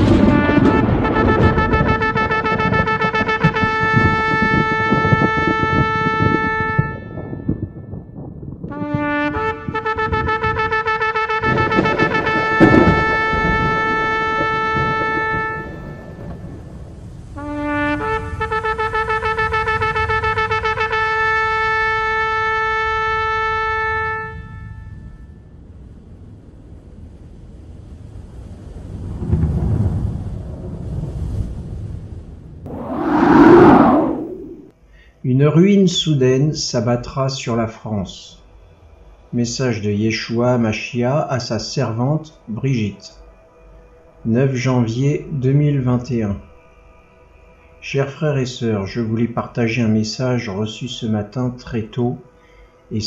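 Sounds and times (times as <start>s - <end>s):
low rumble: 32.7s - 34.7s.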